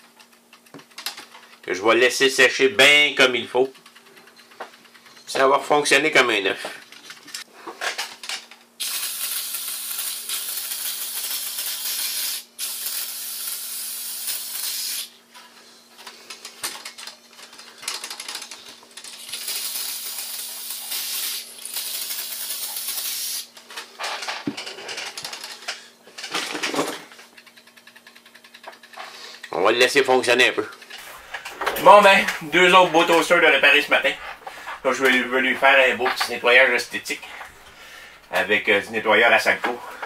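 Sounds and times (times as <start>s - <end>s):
aerosol spray hissing: 8.8s - 15.1s, 19.4s - 23.5s.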